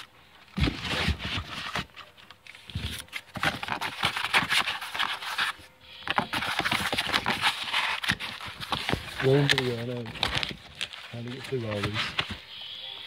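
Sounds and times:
cardboard box rustling: 0.0 - 12.4.

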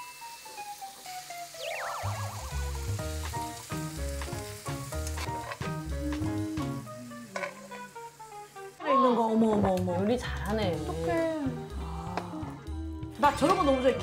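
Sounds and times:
food sizzling in a frying pan: 0.0 - 12.5
wobbling falling sound effect: 1.6 - 3.0.

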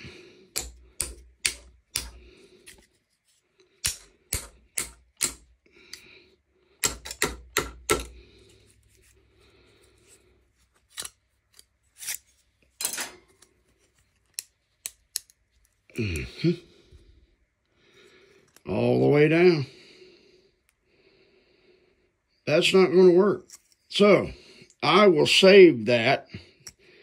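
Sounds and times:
hammer tapping metal blade: 0.5 - 2.2, 3.8 - 5.5, 6.8 - 8.2.

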